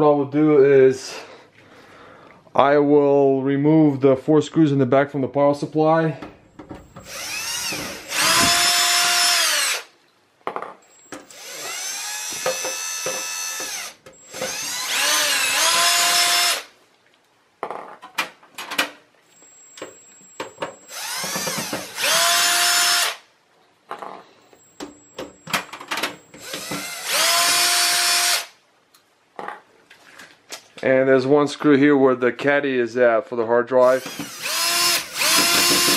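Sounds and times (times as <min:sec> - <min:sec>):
power screwdriver motor whine: 0:06.9 - 0:09.9, 0:10.9 - 0:16.7, 0:19.4 - 0:23.2, 0:24.6 - 0:28.5, 0:34.0 - 0:35.9.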